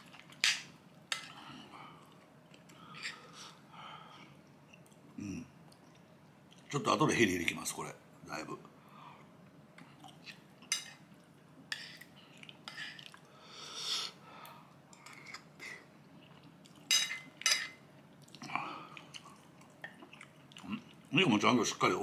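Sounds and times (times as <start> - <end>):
man chewing with wet mouth clicks: 12.0 - 13.3.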